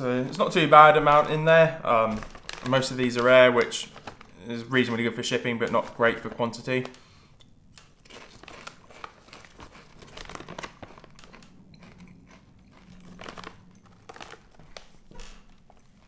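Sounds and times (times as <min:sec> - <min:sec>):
foil bag crinkling: 0:00.0 - 0:07.1, 0:07.7 - 0:16.0
chips crunching: 0:00.4 - 0:07.0, 0:07.7 - 0:16.0.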